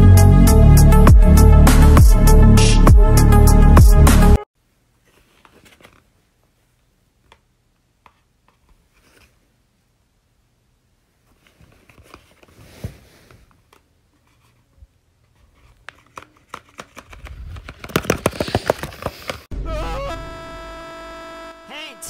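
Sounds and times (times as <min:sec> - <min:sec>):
stiff paper rustling and crinkling: 0:05.0 - 0:06.2
paper clicks and crackles: 0:15.6 - 0:19.5.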